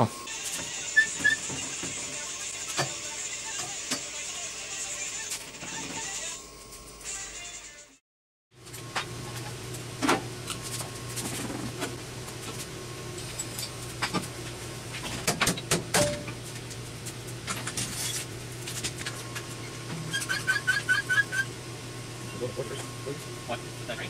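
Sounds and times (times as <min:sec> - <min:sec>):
short squeaky chirps: 0:20.1 - 0:21.5.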